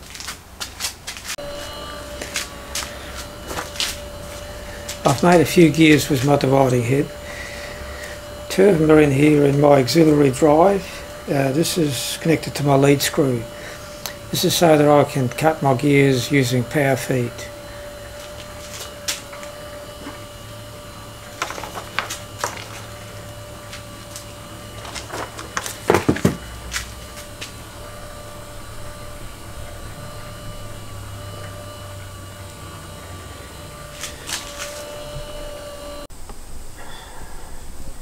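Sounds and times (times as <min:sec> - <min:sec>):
motor humming: 0:00.0 - 0:36.8.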